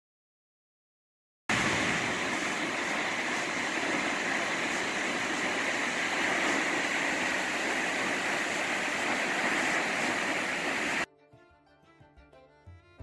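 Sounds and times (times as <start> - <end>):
large waterfall rushing: 1.5 - 11.1.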